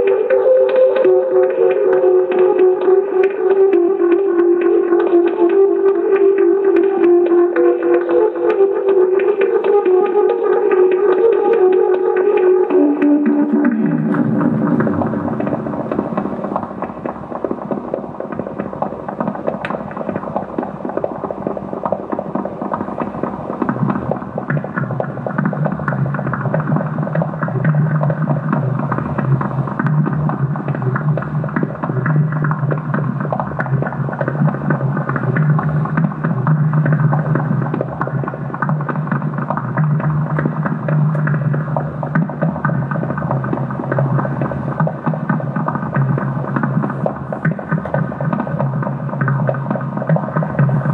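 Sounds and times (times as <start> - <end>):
dense crackling texture: 0.0 - 50.9
steady low hum: 12.9 - 50.9.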